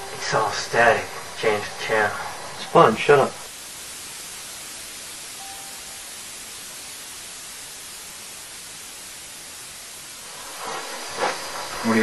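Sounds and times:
television static hiss: 0.0 - 12.0.

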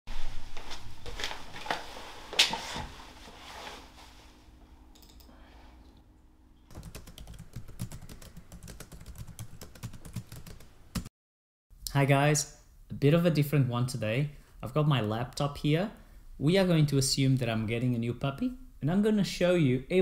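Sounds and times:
typing on computer keyboard: 6.7 - 11.1.

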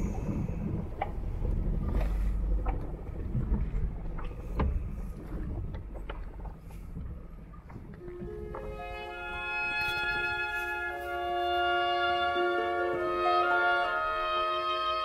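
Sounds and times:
sharp clicks and knocks from boat: 0.0 - 11.2
low rumble of water noise: 0.0 - 15.0.

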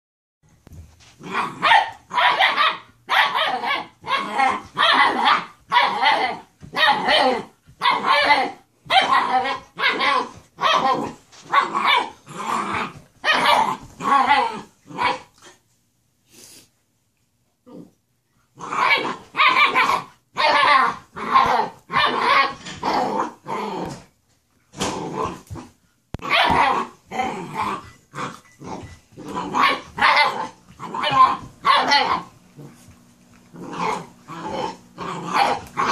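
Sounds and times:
dogs barking: 1.6 - 12.2, 26.2 - 26.9, 29.5 - 32.3
dogs growling: 9.1 - 15.5, 20.6 - 24.1, 24.8 - 35.9.

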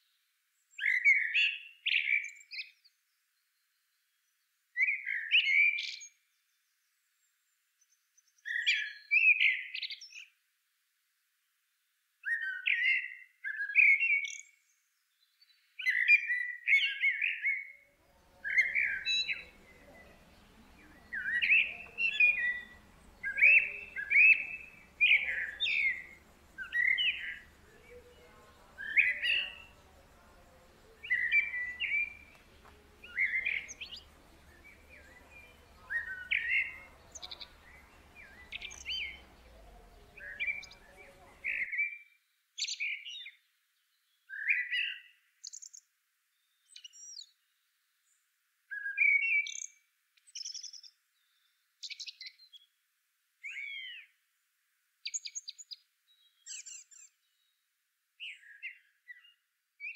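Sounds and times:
woodpecker chirps: 18.2 - 41.7.

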